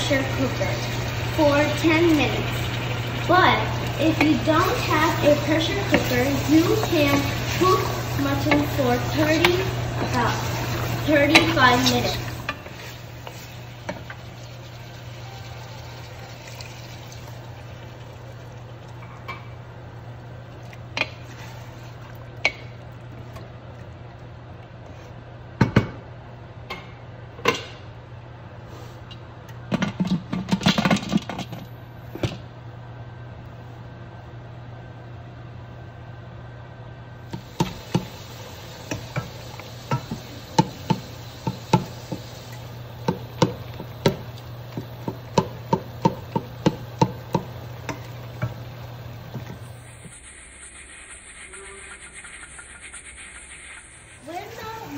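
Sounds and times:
low hum: 47.8 - 54.9.

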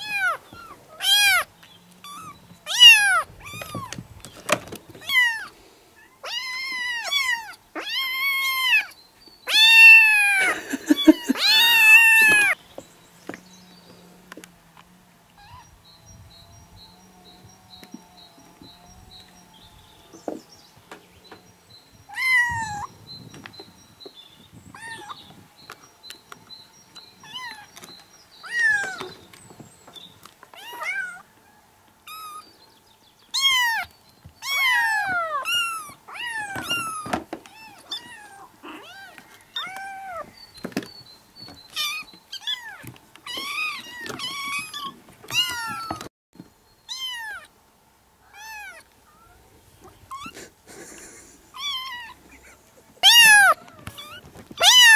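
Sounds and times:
kittens meowing: 0.0 - 4.0, 4.9 - 12.6, 15.4 - 15.8, 22.0 - 23.0, 24.7 - 25.4, 27.2 - 29.2, 30.5 - 31.3, 32.1 - 32.5, 33.3 - 40.4, 41.7 - 46.1, 46.9 - 47.5, 48.2 - 54.9.

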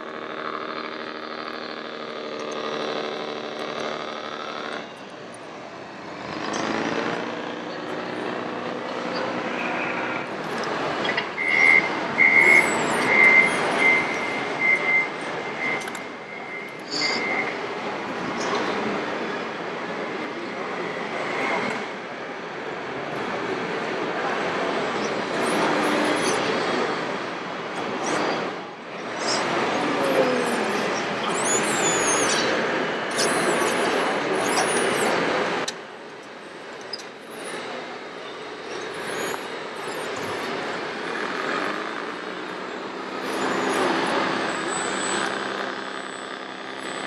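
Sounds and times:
model engine din: 0.0 - 11.0
model motors whirring with whine: 0.0 - 47.0
reversing warning beeps: 11.0 - 17.7.

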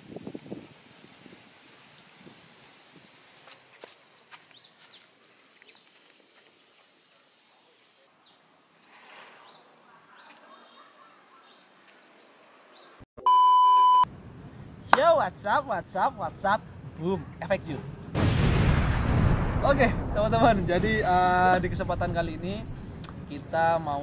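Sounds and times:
faint outdoor background: 0.0 - 24.0
birds chirping: 8.2 - 13.0
steady test-pattern beep tone: 13.2 - 14.1.

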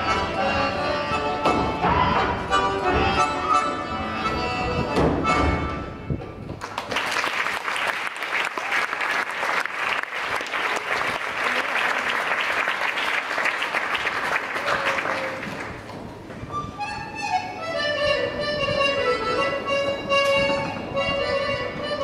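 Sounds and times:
instrumental folk tune: 0.0 - 6.6, 16.3 - 22.0
audience applauding: 6.6 - 16.0.

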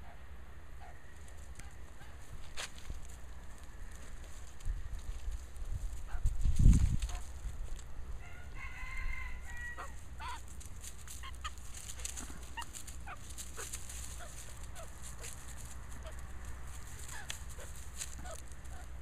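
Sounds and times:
magpie calling: 9.5 - 15.4.

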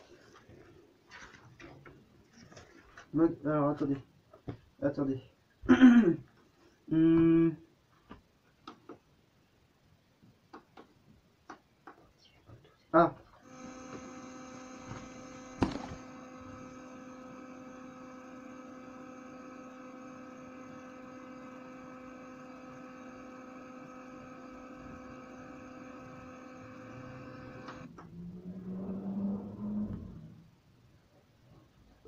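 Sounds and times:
speaker electronic buzzing tone: 13.5 - 27.9.

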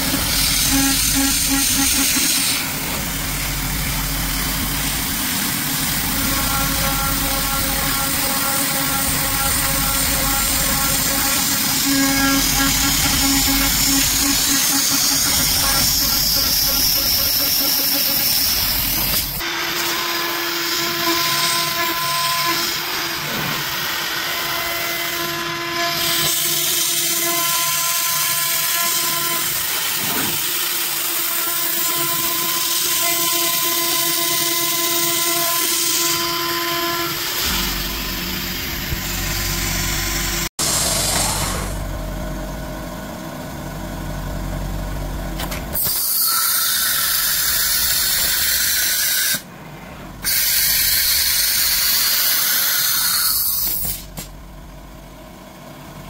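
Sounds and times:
milling spindle cutting tone: 3.6 - 19.4.

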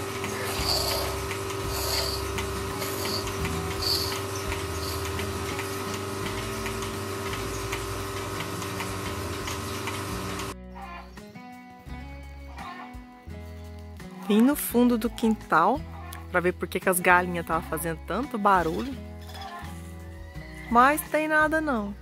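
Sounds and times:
milking machine humming and ticking: 0.0 - 11.0.

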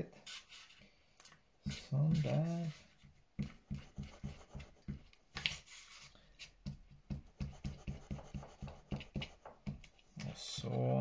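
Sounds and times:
glue stick rubbing on paper: 3.4 - 5.1, 7.1 - 10.0.

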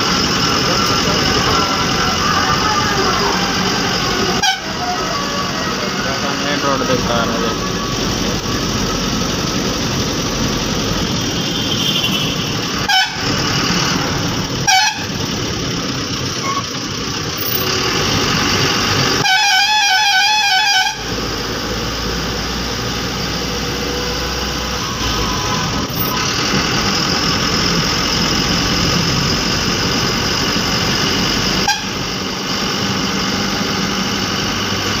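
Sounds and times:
bus engine and road noise: 0.0 - 35.0
warbling musical horn: 1.2 - 9.0, 11.3 - 13.4, 14.6 - 15.2, 19.2 - 21.2.

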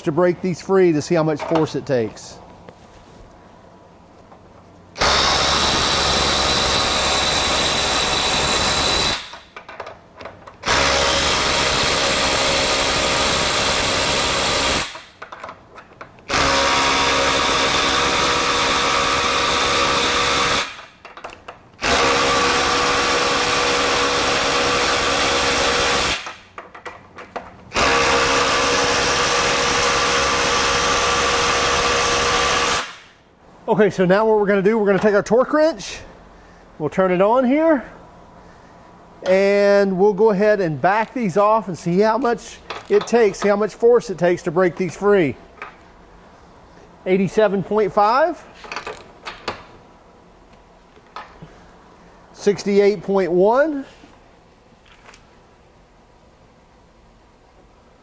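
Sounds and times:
impact wrench whine: 5.0 - 9.6, 10.6 - 15.2, 16.3 - 26.6, 27.7 - 33.2
impact wrench hammering: 5.0 - 10.0.

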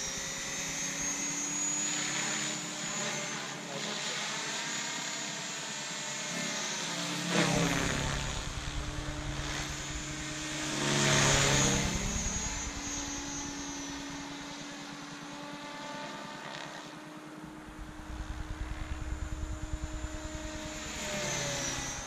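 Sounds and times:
rc helicopter rotor whirring: 0.0 - 22.0.

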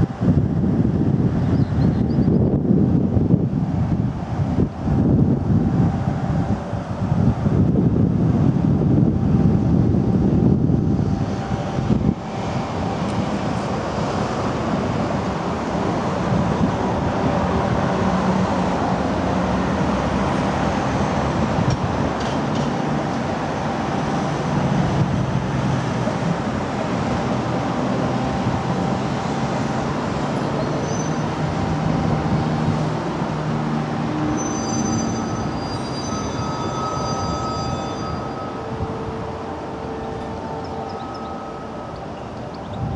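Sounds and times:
road traffic: 0.0 - 42.9
high wheel squeals: 30.3 - 32.4, 34.0 - 42.9.

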